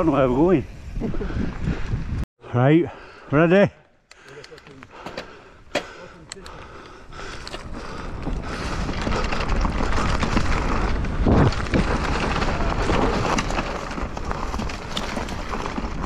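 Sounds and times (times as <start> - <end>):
wind rushing over microphone: 0.0 - 2.3
bike tyre and frame noise: 4.2 - 16.0.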